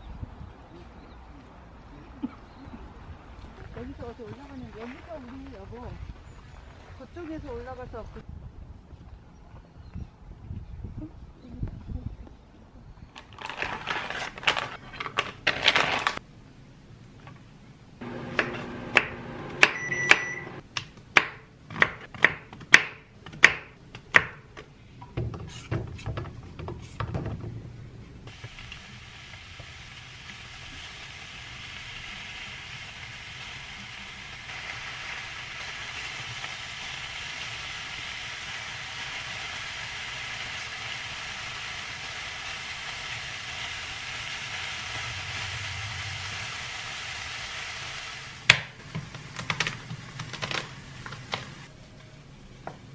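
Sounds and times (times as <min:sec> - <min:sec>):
mushrooms sizzling in a frying pan: 0:28.3 - 0:48.5.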